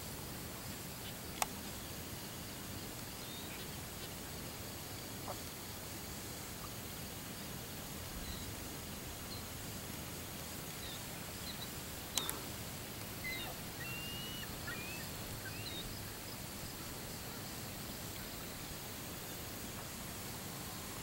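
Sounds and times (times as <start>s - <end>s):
low outdoor background noise: 0.0s - 21.0s
small birds chirping: 10.6s - 16.9s
sharp click: 12.1s - 12.4s.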